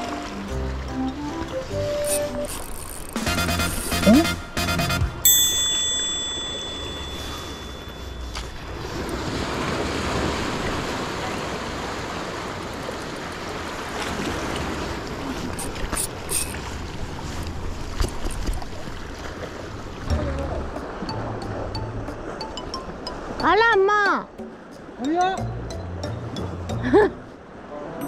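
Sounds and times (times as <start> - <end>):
waves washing against rocks: 8.7 - 18.1.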